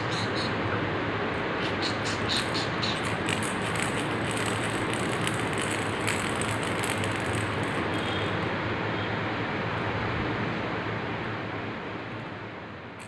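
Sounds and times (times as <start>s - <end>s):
plastic rattle shaken: 2.3s - 8.2s.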